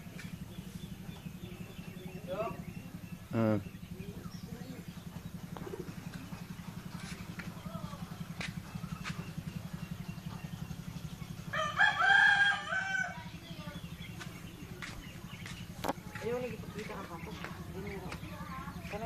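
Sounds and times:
steady low hum: 0:00.0 - 0:19.0
rooster crowing: 0:11.5 - 0:13.3.

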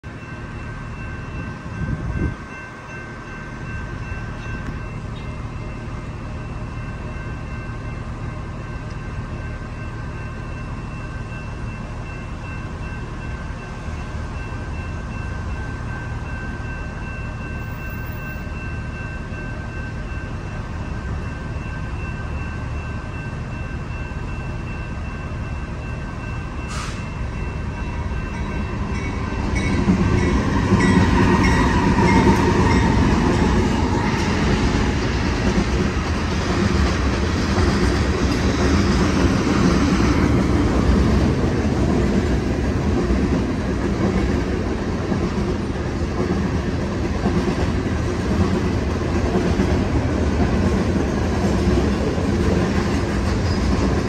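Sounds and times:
street traffic: 0:00.0 - 0:54.0
short hiss: 0:26.7 - 0:27.2.

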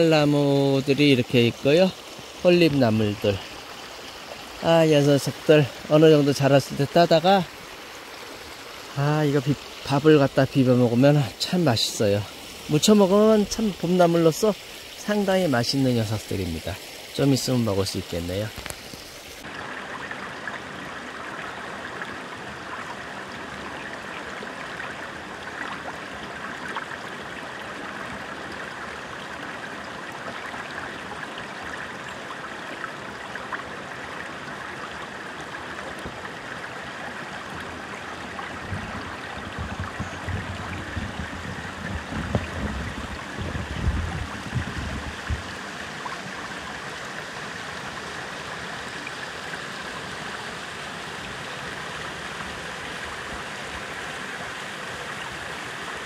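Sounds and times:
stream flowing over rocks: 0:00.0 - 0:56.0
low uneven rumbling: 0:37.2 - 0:45.8.

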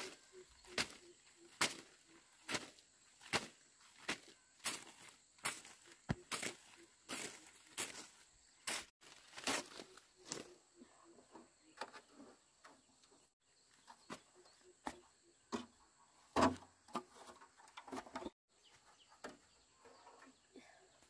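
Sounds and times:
wooden posts and roofing sheets knocking: 0:16.3 - 0:18.3.

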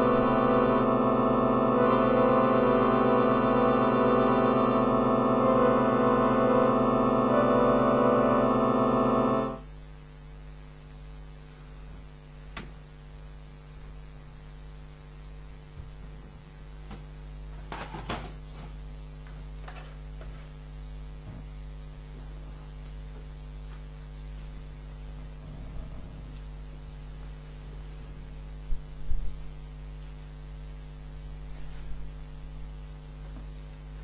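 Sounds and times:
electronic keyboard sustained chord: 0:00.0 - 0:09.7
electrical mains hum: 0:00.0 - 0:34.0.

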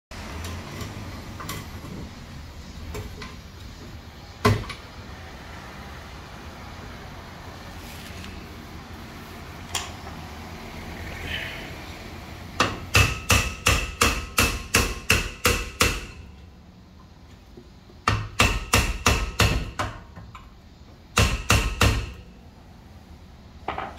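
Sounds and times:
hammer striking metal: 0:12.6 - 0:16.3.

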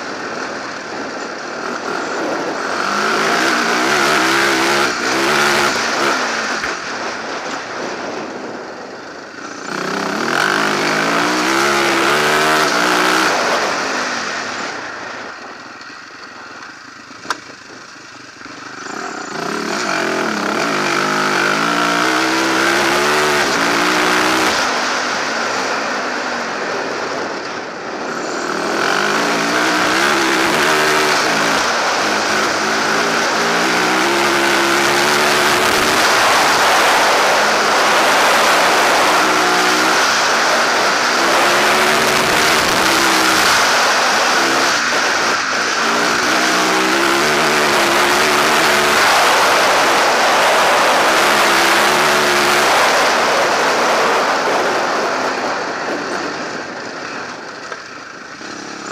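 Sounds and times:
motorcycle engine revving: 0:00.0 - 0:58.9
wind rushing: 0:19.4 - 0:56.9.

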